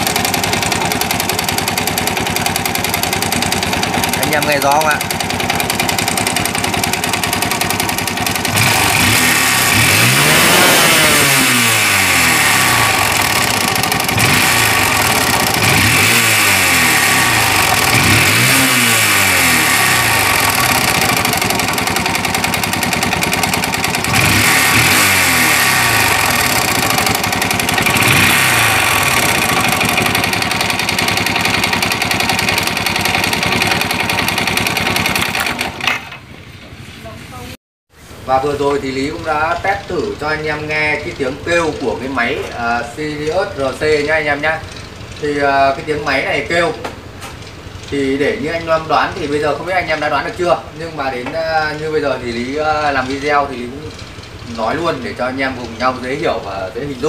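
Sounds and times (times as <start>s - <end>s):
motorcycle engine revving: 0.0s - 36.3s, 39.0s - 57.0s
engine rasping noise: 0.0s - 37.5s.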